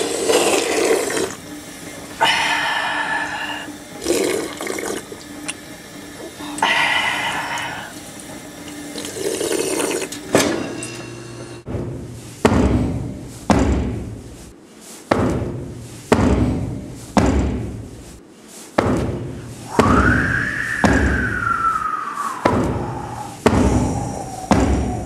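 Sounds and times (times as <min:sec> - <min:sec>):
high gliding tone: 0:19.7 - 0:23.4.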